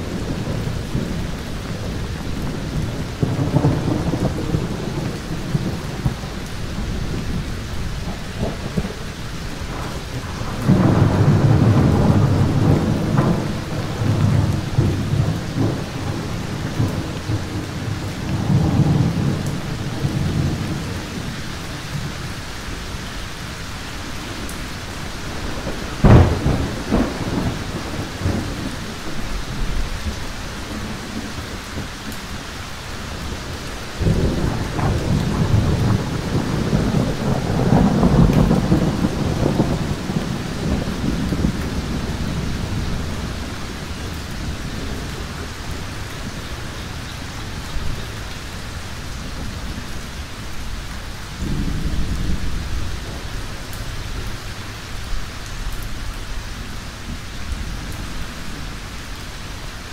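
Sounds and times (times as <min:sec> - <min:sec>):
thunder rumbling: 0:00.0 - 0:59.5
heavy rain: 0:00.0 - 0:59.9
sharp thunder crack: 0:09.6 - 0:20.8, 0:25.6 - 0:28.7.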